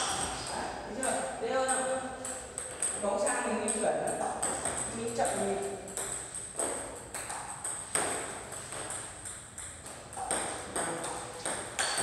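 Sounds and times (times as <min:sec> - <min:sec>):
ball bouncing on table: 0:01.0 - 0:12.0
bat striking table tennis ball: 0:05.8 - 0:12.0.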